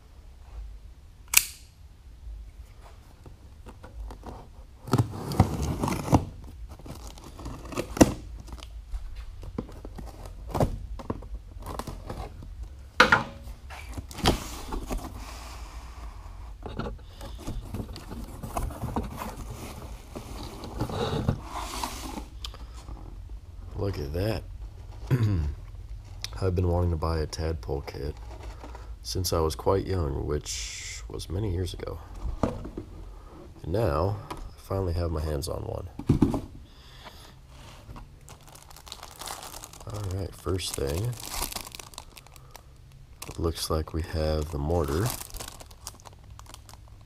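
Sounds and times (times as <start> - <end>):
packing rustling: 4.0 - 8.7, 37.8 - 42.6, 43.2 - 47.0
packing tape ripping: 44.8 - 46.8.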